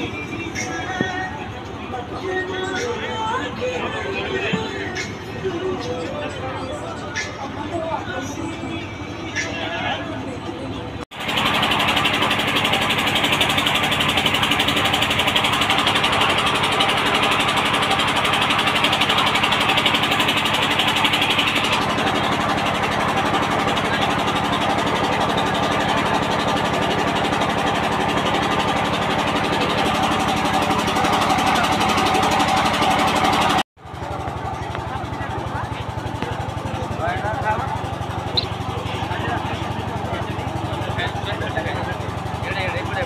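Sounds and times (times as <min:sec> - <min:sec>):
engine-like hum: 0:00.0 - 0:43.0.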